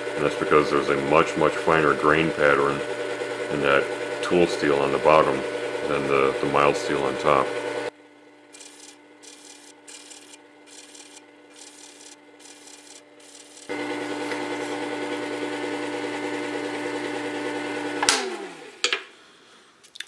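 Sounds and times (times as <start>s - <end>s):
sharpener motor running: 0.0s - 7.9s, 8.5s - 18.6s
blade scraping on abrasive disc: 8.5s - 15.5s.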